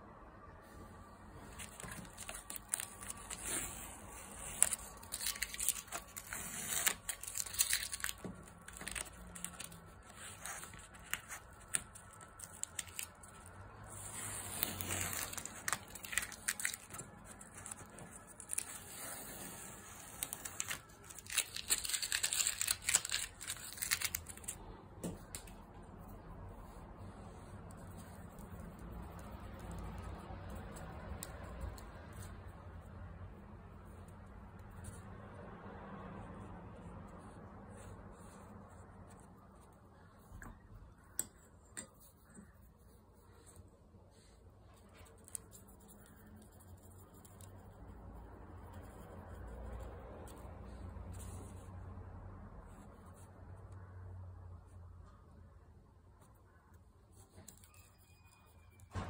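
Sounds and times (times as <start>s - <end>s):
masking tape being peeled: 1.5s - 24.6s.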